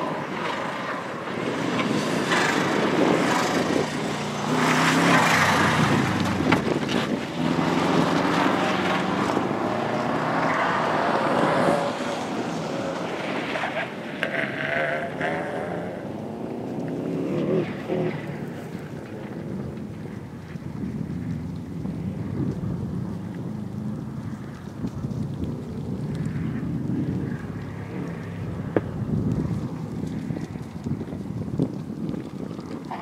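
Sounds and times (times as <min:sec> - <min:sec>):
car engine revving: 0:00.0 - 0:19.7
wind buffeting microphone: 0:00.0 - 0:33.0.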